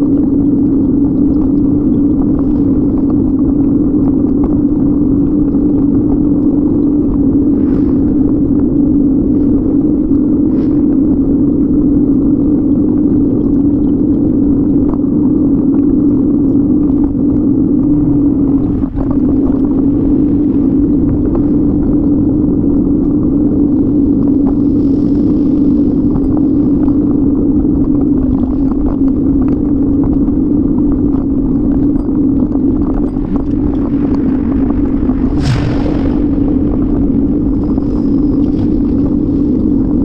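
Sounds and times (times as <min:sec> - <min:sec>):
wind noise on microphone: 0:00.0 - 0:40.0
road noise hum: 0:05.8 - 0:12.4, 0:32.8 - 0:40.0.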